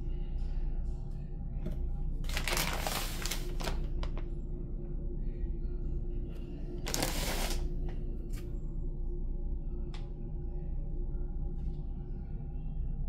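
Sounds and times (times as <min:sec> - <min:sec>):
plastic wrapper crinkling: 0:02.3 - 0:04.2, 0:06.9 - 0:07.6.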